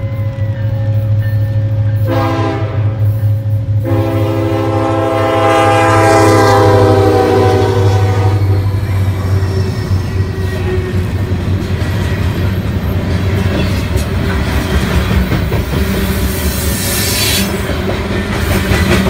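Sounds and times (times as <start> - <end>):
diesel locomotives rumbling: 0.0 - 19.0
locomotive air horn blasts: 2.0 - 10.9.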